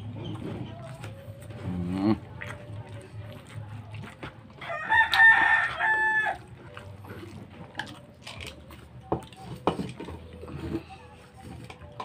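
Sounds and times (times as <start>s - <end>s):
chewing: 0.0s - 12.0s
rooster crowing: 4.6s - 6.5s.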